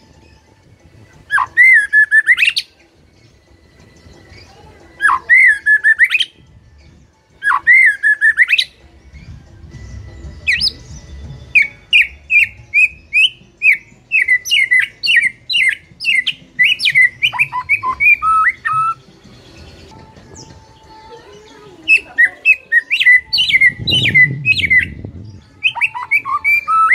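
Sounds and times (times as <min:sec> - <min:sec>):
bird singing whistled phrases: 0:01.3 - 0:02.8, 0:04.3 - 0:06.4, 0:07.4 - 0:09.3, 0:10.5 - 0:19.0, 0:21.8 - 0:26.9.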